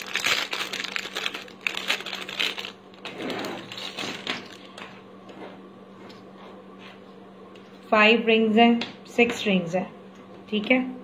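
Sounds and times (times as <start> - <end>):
plastic packet crinkling: 0.0 - 4.8.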